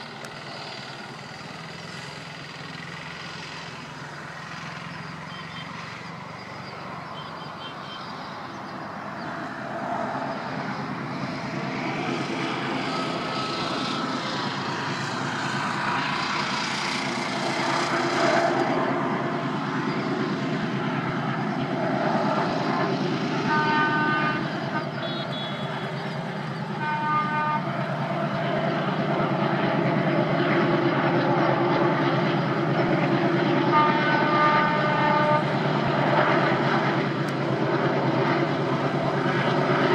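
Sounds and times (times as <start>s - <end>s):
diesel locomotive engines running: 0.0s - 39.9s
locomotive horn blasts: 23.4s - 26.0s, 26.7s - 27.7s, 33.6s - 35.6s.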